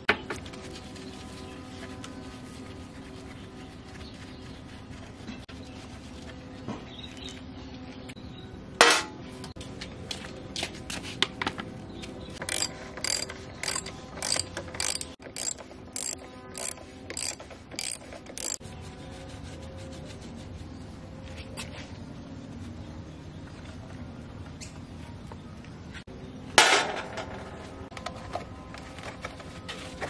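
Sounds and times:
sharp metal knock: 8.8 - 9.2
ratchet wrench clicking: 12.4 - 18.6.

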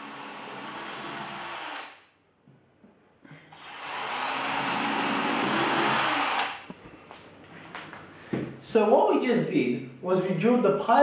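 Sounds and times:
electric drill boring: 0.0 - 2.0, 3.6 - 6.6.

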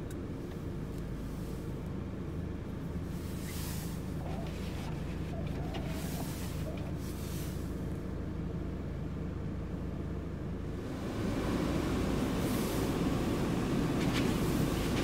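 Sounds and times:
car engine rumble inside cabin: 0.0 - 15.0
road noise: 0.0 - 15.0
windscreen wiper sweeping: 3.1 - 7.7, 10.8 - 15.0.

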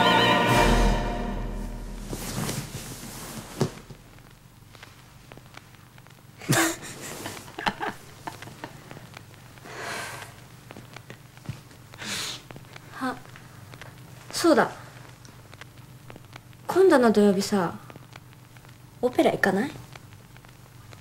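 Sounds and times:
people laughing breathily: 6.4 - 8.9.

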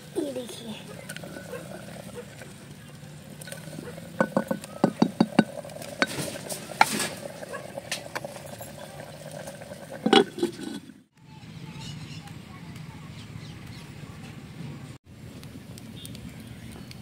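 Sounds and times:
wooden spoon knocking clay pot: 3.4 - 6.9.

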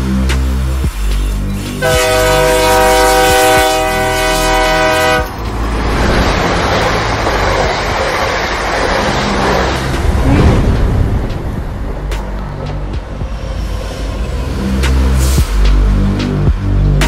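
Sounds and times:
rumble of arriving train: 0.0 - 17.0
train horn blast: 1.8 - 5.4.

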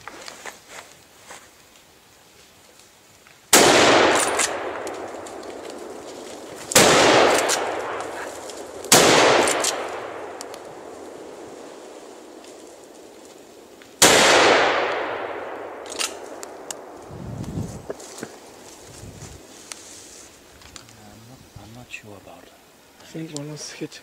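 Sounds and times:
gunshots echoing: 3.5 - 12.9, 14.0 - 17.0.

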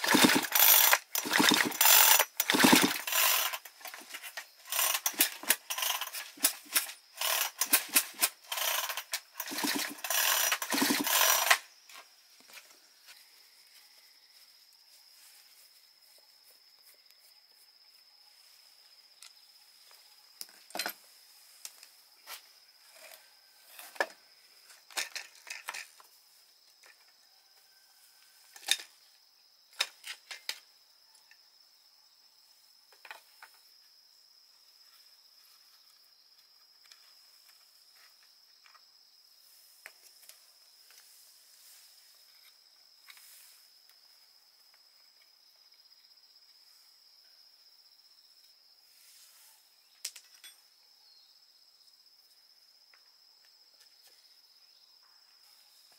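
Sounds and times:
metal tools clicking and rattling: 0.0 - 11.6
high-pitched insect tone: 0.0 - 55.9.

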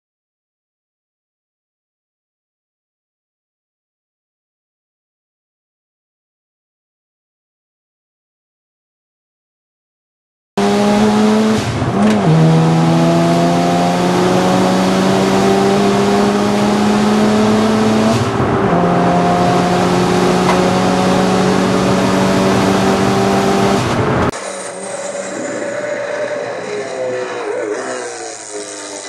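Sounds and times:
car engine heard from outside: 10.6 - 29.0
rotary engine pulling hard: 10.6 - 29.0.

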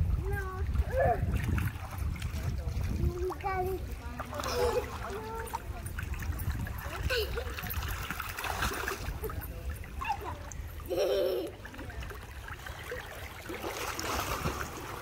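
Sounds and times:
pool water splashing: 0.0 - 15.0.

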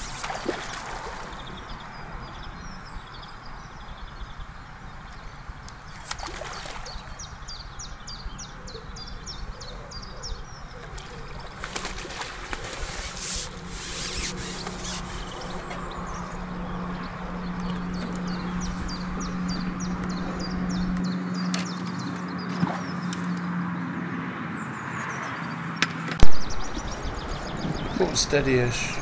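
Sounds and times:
net splashing in water: 0.0 - 1.6, 6.0 - 7.0, 11.0 - 15.4
steady low hum: 0.0 - 23.0
birds chirping: 0.0 - 29.0.

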